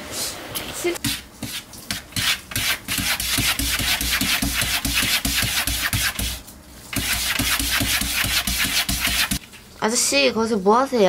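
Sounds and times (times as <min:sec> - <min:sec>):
cat scratching cupboard panel: 0:01.0 - 0:06.4, 0:07.0 - 0:09.4.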